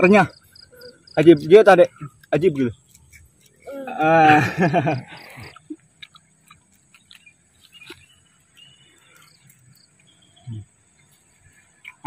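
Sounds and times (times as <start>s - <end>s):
crickets chirring: 0.0s - 12.0s
crunchy chewing: 0.1s - 12.0s
child laughing: 3.7s - 5.6s.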